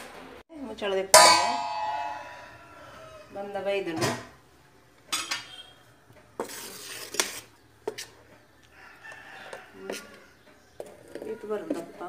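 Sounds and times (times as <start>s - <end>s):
spoon clinking in metal vessel: 1.2s - 2.4s.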